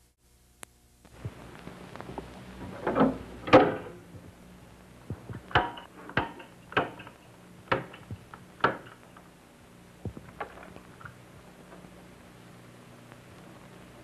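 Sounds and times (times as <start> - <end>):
metal panel door clattering open: 2.8 - 4.0
circuit breakers snapping: 5.1 - 9.3.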